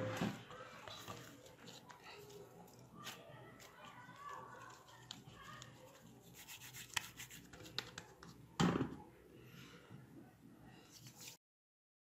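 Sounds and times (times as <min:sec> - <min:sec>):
hands squeezing bread dough: 0:00.7 - 0:08.4.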